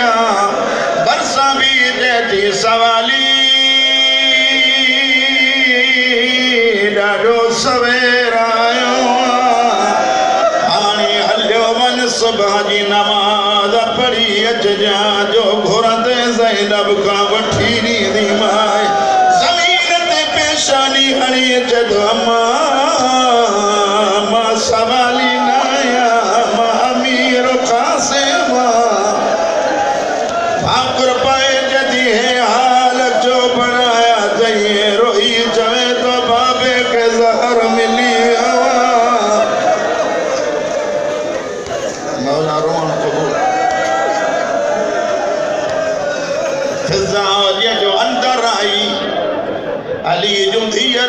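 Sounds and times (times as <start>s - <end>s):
man chanting: 0.0s - 29.3s, 30.5s - 39.8s, 46.8s - 49.2s.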